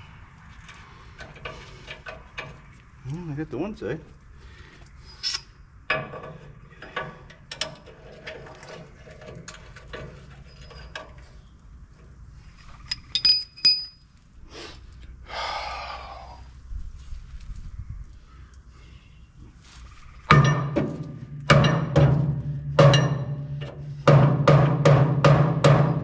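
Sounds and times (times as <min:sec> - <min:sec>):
metal tools clinking: 0:09.4 - 0:11.4, 0:12.7 - 0:14.1.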